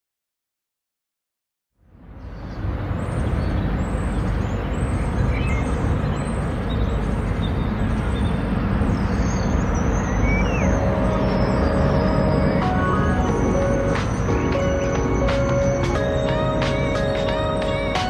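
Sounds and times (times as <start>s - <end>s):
rumble of passing vehicles: 1.8s - 18.0s
faint high chirps: 9.2s - 18.0s.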